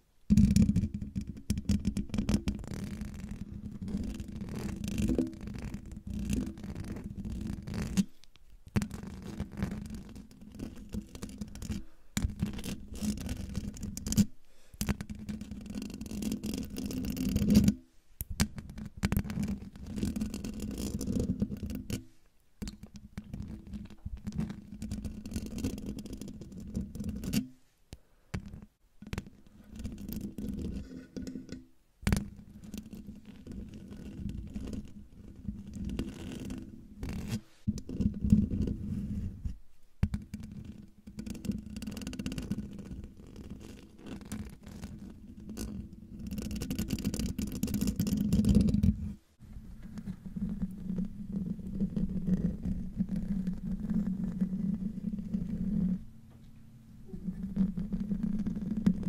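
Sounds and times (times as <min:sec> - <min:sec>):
fingernails scratching microphone grille: 0:02.5 - 0:08.2, 0:29.2 - 0:39.6.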